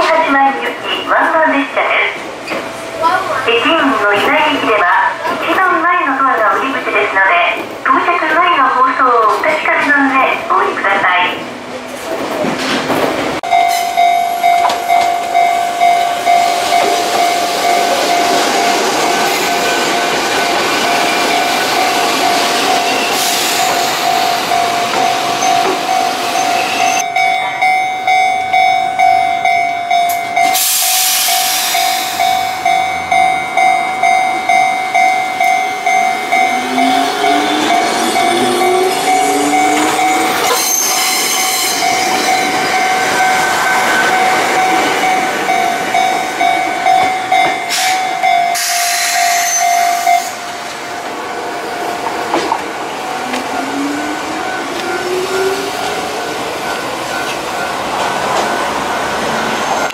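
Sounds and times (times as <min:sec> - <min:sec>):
level-crossing alarm ringing: 0:13.4 - 0:59.9
electric train motors whining: 0:14.2 - 0:59.9.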